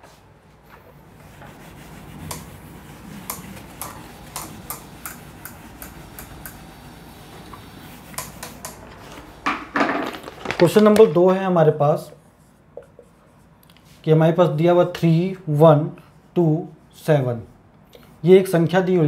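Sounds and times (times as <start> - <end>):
eraser rubbing on whiteboard: 1.0 - 8.7.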